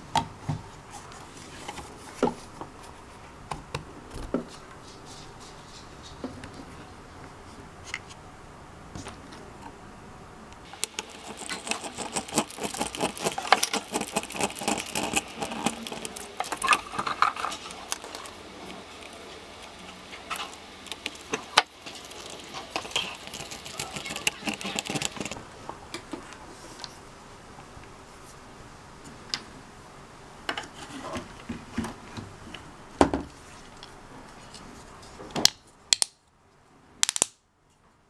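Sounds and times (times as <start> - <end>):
screwdriver clicking and scraping plastic: 10.6 - 25.4.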